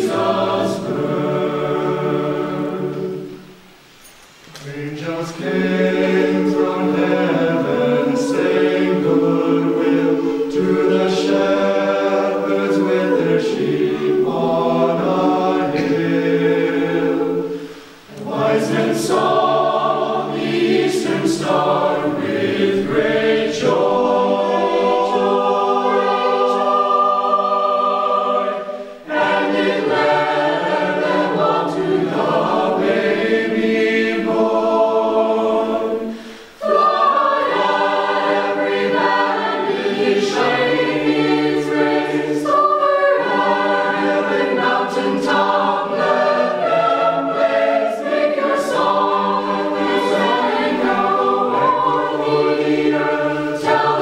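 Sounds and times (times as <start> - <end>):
choir singing a hymn: 0.0 - 54.0.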